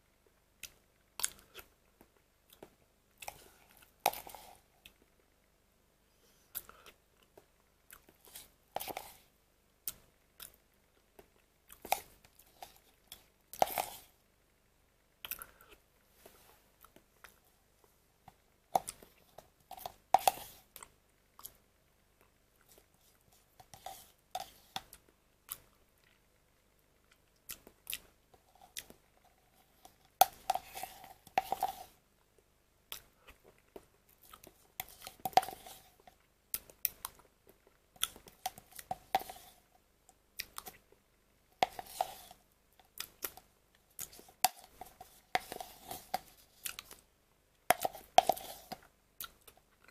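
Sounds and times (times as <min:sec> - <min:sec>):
spoon scraping plastic cup: 0:04.0 - 0:04.6, 0:08.2 - 0:09.2, 0:11.9 - 0:14.2, 0:18.8 - 0:20.7, 0:23.3 - 0:24.9, 0:28.4 - 0:32.0, 0:34.8 - 0:36.2, 0:38.3 - 0:39.7, 0:41.6 - 0:42.4, 0:44.0 - 0:47.0, 0:47.7 - 0:48.9.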